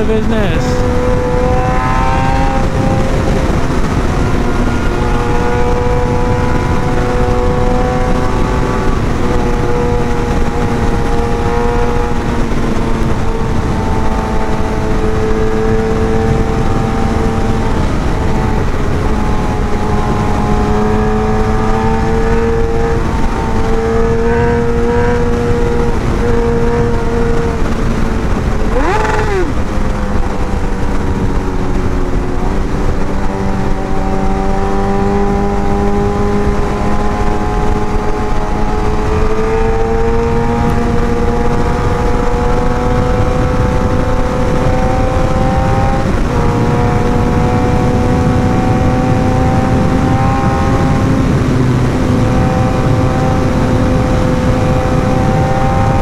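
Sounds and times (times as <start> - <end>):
motorcycle engine revving high: 0.0 - 56.0
wind rush on microphone: 0.0 - 56.0.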